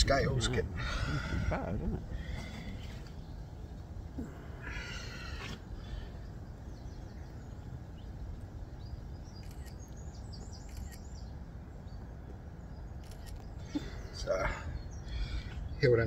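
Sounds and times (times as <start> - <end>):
low outdoor rumble: 0.0 - 16.0
bird chirps: 4.8 - 16.0.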